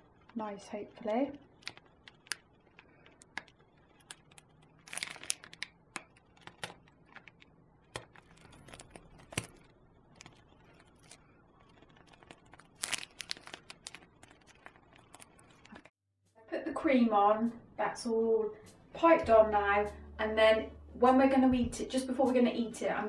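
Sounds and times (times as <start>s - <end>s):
plastic piping bag crinkling: 1.0s - 15.9s.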